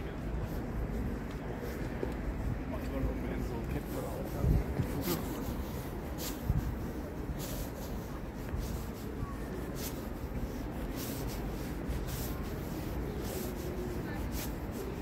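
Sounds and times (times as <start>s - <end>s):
footsteps on pavement: 0.0s - 15.0s
street background noise: 0.0s - 15.0s.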